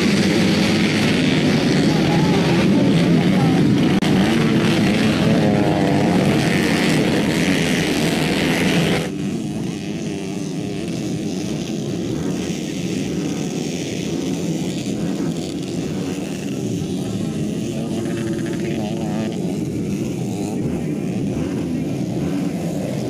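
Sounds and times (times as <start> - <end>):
motorcycle engines revving: 0.0 - 23.0
motorcycles running on track: 0.0 - 23.0.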